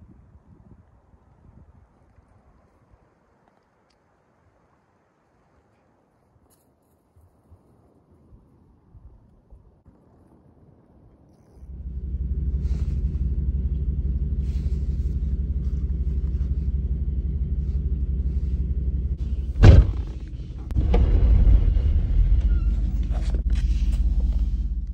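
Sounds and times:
wind buffeting microphone: 0.0 - 3.0
faint small clicks: 3.4 - 4.1
loud knock: 19.6 - 21.6.

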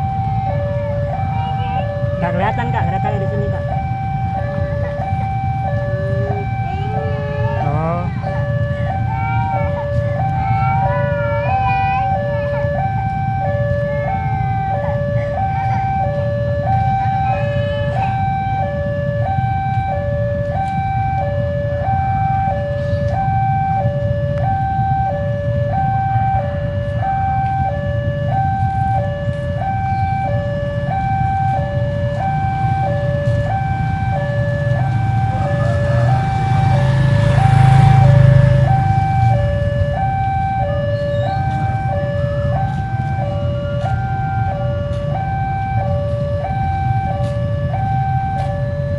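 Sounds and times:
two-tone crossing alarm: 0.0 - 48.9.

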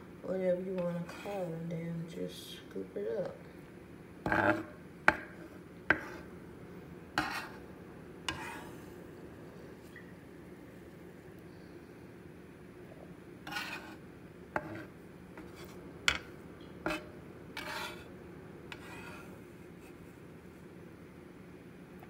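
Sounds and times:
faint low hum: 0.0 - 22.0
metal spatula scraping wooden board: 0.8 - 1.6, 4.2 - 4.7, 5.9 - 6.3, 7.2 - 7.6, 8.3 - 8.9, 13.4 - 14.0, 14.6 - 18.1, 18.7 - 19.4.

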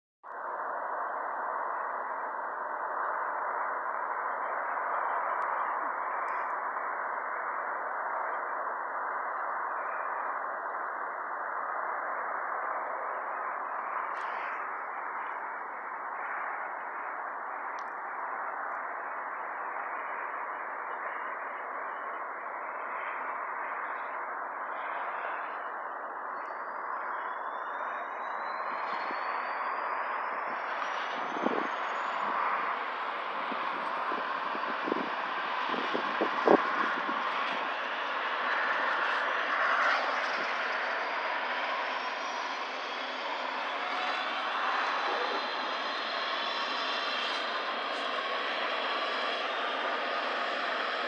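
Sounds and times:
turbine whine rising: 24.6 - 51.0
helicopter rotor rushing: 33.4 - 51.0.

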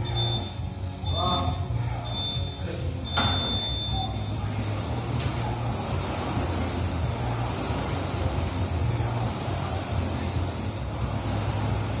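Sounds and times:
timer beep: 0.0 - 4.4
rowing machine flywheel whirring: 3.0 - 12.0.

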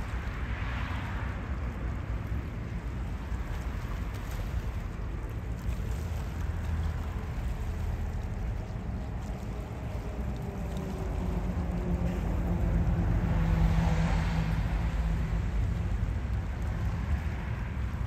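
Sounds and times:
low traffic rumble: 0.0 - 18.0
vehicle engine passing: 9.6 - 17.4.

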